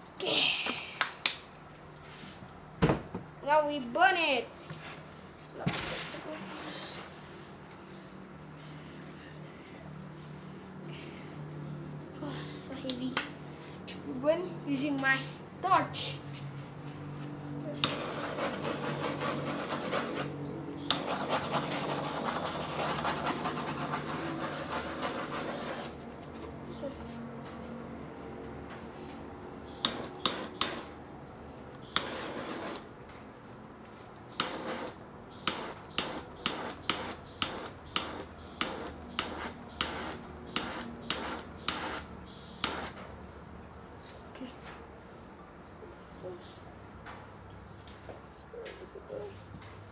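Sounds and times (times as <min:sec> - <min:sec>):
gas torch flame hissing: 0:17.7 - 0:26.0, 0:29.6 - 0:31.0, 0:31.8 - 0:32.9, 0:34.3 - 0:43.0
sharp click: 0:29.8 - 0:30.9, 0:34.3 - 0:34.6, 0:35.4 - 0:43.0.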